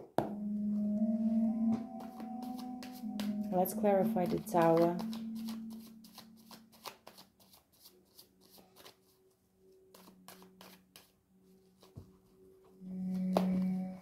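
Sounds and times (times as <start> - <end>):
cards being shuffled: 4.6 - 9.3, 9.9 - 11.2.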